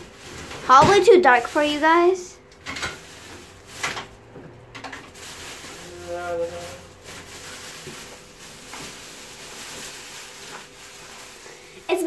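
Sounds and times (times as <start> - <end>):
plastic bags rustling: 0.0 - 12.0
items shifting in cupboard: 2.6 - 11.2.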